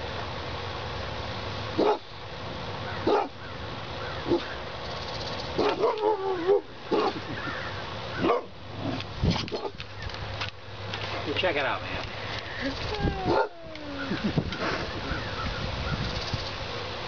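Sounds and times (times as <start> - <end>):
dogs barking: 1.8 - 2.1, 2.9 - 3.5, 4.1 - 4.6, 5.5 - 7.5, 8.1 - 9.8, 13.1 - 14.2
dog whining: 5.6 - 7.2, 12.6 - 14.3.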